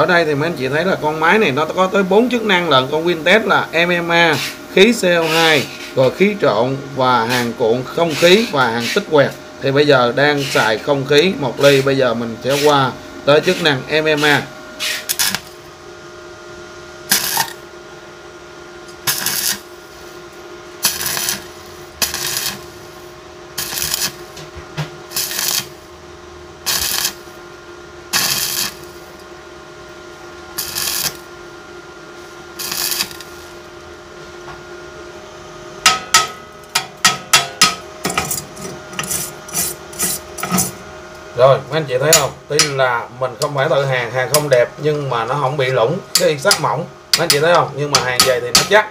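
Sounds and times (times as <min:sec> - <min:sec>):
steady hum: 0:00.0 - 0:48.9
welding arc crackle: 0:14.2 - 0:15.6, 0:17.1 - 0:17.7, 0:18.9 - 0:20.0, 0:20.8 - 0:24.4, 0:25.1 - 0:25.9, 0:26.6 - 0:27.4, 0:28.1 - 0:29.3, 0:30.5 - 0:31.3, 0:32.5 - 0:33.7.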